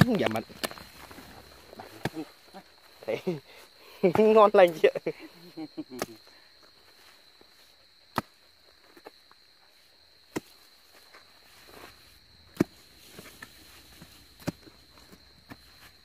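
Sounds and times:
high insect call: 0:00.0 - 0:16.0
hoe chopping into dirt: 0:08.1 - 0:08.4, 0:12.5 - 0:14.7.

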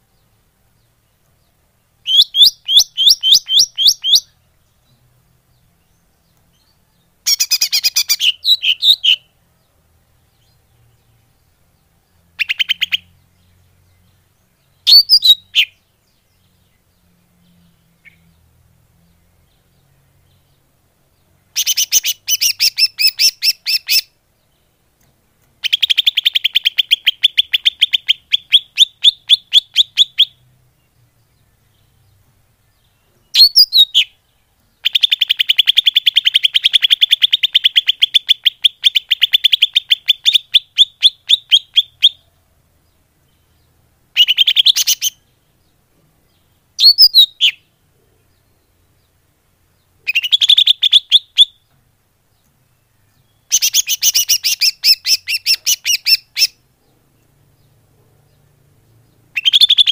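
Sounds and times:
bird chattering call: 0:53.5 - 0:56.6, 0:59.3 - 0:59.9.

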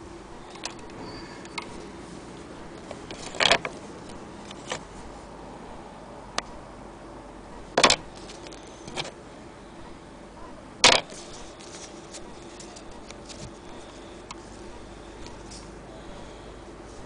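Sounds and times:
handling knocks and clicks: 0:02.8 - 0:04.9, 0:07.8 - 0:09.1, 0:10.8 - 0:14.4.

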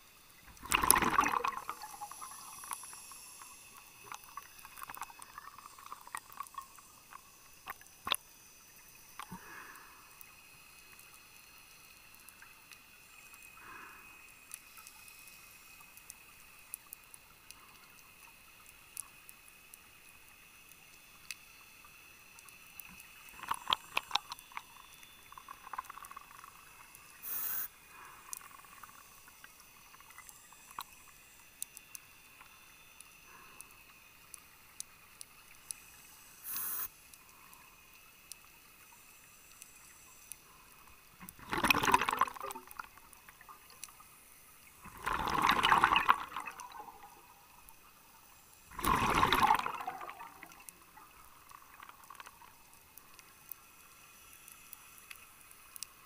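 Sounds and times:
regulator bubbling underwater: 0:00.5 - 0:02.8, 0:41.3 - 0:43.0, 0:44.8 - 0:47.3, 0:48.7 - 0:52.3.

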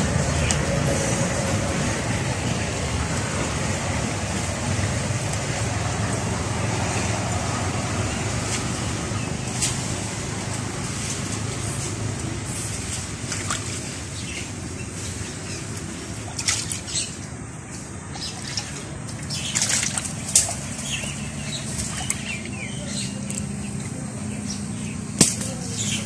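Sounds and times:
fish thrashing and splashing: 0:12.6 - 0:17.3, 0:18.0 - 0:23.8.

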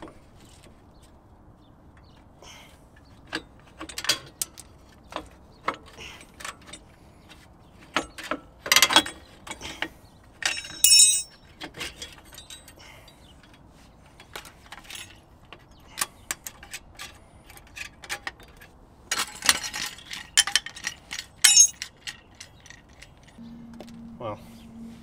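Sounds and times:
metal clinks of brake springs: 0:08.7 - 0:13.6, 0:21.1 - 0:21.9.

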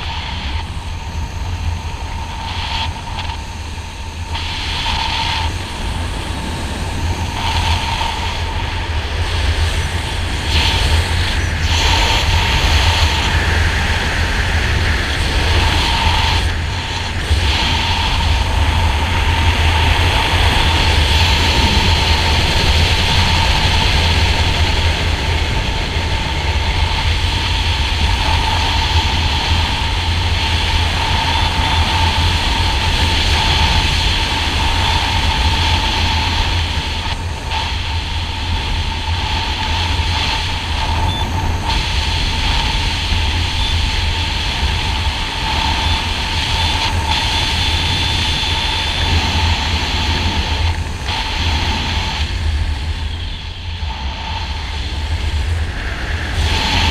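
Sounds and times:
wind rushing over microphone: 0:00.0 - 0:56.9
faint whistling tone: 0:41.0 - 0:41.3, 0:43.5 - 0:43.9.

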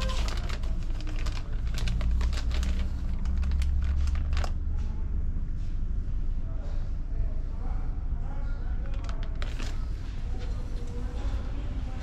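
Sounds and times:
light clicks and crinkling: 0:00.0 - 0:04.6, 0:08.8 - 0:11.0.

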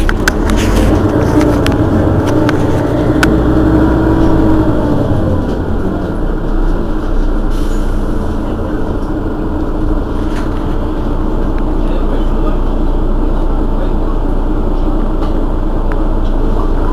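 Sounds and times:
hum: 0:00.0 - 0:07.4
bus diesel engine idling: 0:00.0 - 0:16.9.

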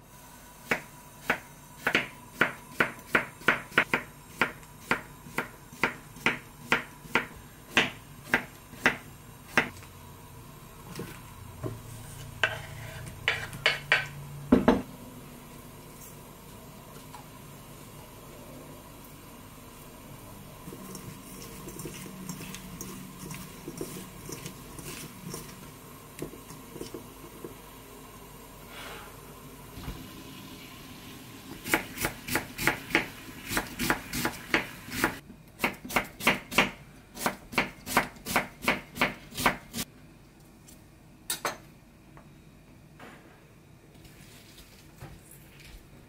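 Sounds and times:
knife chopping on wooden board: 0:31.7 - 0:39.8.

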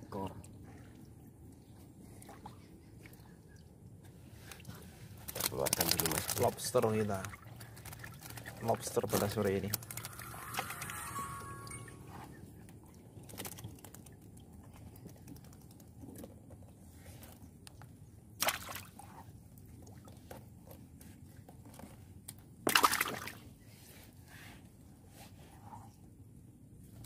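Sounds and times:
water sloshing: 0:04.3 - 0:15.4, 0:22.7 - 0:23.5.

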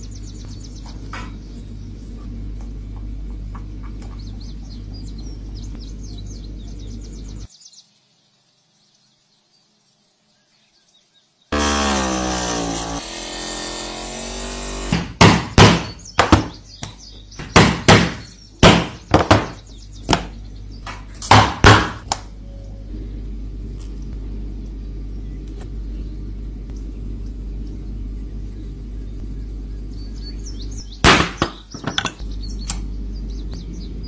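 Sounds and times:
hammer knocking on hole punch: 0:14.8 - 0:20.4.

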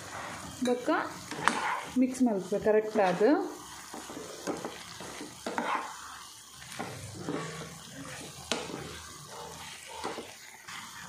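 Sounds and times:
light sizzle: 0:00.0 - 0:11.0
spoon scraping and clinking pan: 0:03.9 - 0:06.1.

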